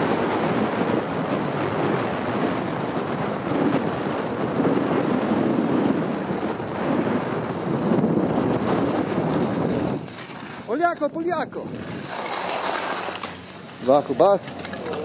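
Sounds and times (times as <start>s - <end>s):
skis sliding over snow: 0.0s - 15.0s
wind rushing over microphone: 0.0s - 15.0s.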